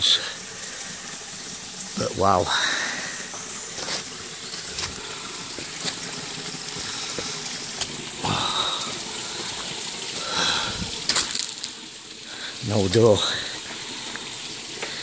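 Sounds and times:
running water hiss: 0.0 - 15.0.

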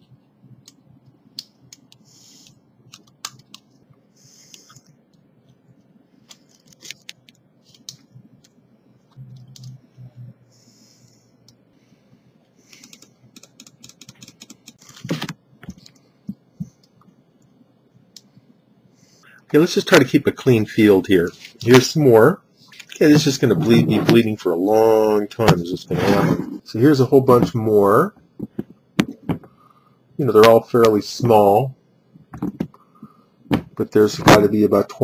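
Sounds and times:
hissy breaths: 1.9 - 2.7, 4.0 - 5.0, 10.4 - 13.3, 18.2 - 19.5, 32.7 - 33.4.

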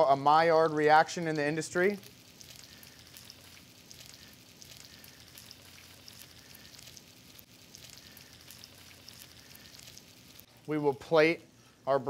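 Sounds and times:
fish sizzling in a skillet: 1.7 - 10.5.

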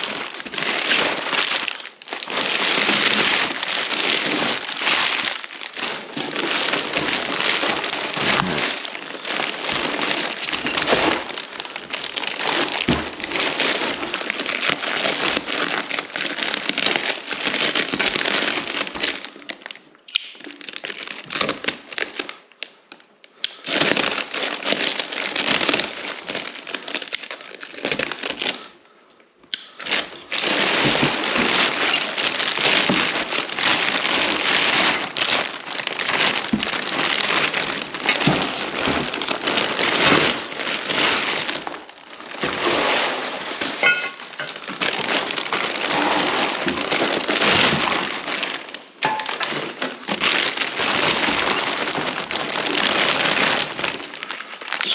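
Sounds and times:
bubble wrap and plastic crinkling: 0.0 - 54.9.

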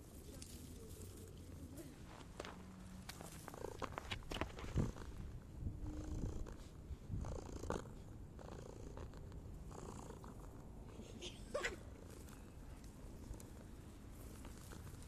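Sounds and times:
cat purring: 3.4 - 10.9.

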